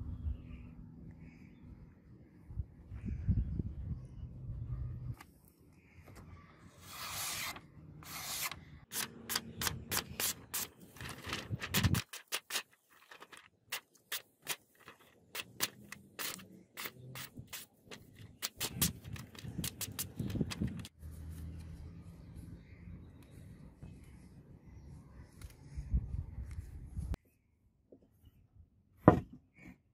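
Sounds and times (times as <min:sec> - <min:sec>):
razor slicing paper: 0:06.8 - 0:20.9.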